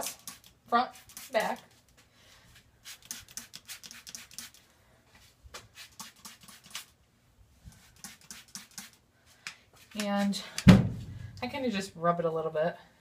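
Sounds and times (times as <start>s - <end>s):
spray bottle squirting: 0.0s - 1.6s, 2.8s - 4.6s, 5.8s - 7.0s, 7.8s - 9.0s.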